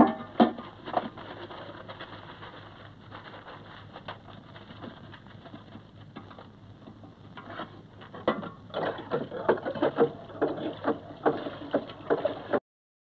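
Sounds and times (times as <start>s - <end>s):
objects being handled: 0.0s - 12.6s.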